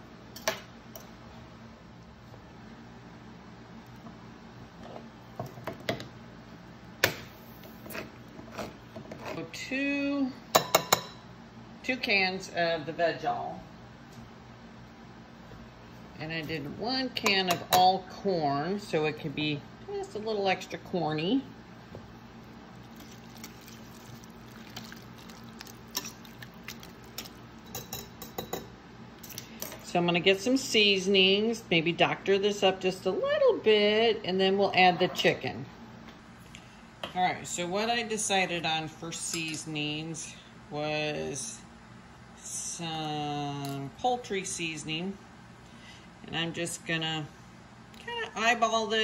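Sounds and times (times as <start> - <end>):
wet stirring in a bowl: 22.4 - 28.5.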